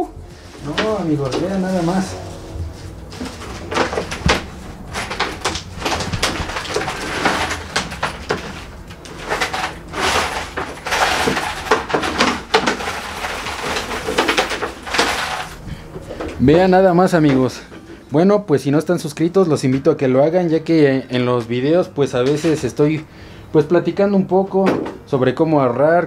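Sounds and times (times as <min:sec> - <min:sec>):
banknotes rustling: 0:00.2 - 0:18.1
coins clinking: 0:03.1 - 0:15.6.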